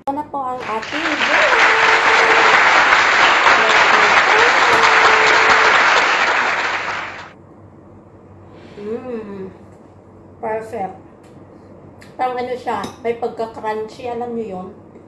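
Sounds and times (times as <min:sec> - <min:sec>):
crowd clapping: 0:00.6 - 0:07.4.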